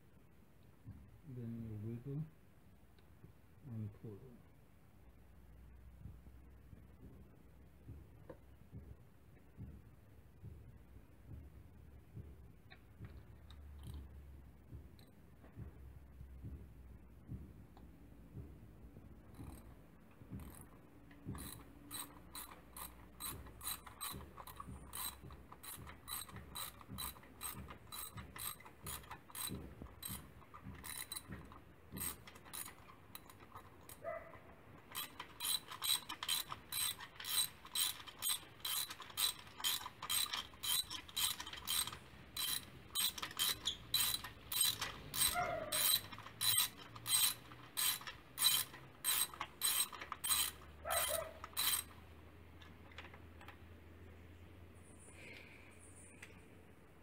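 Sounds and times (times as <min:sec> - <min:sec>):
socket ratchet clicking: 0:19.3 - 0:19.7, 0:20.4 - 0:34.1, 0:34.8 - 0:52.0.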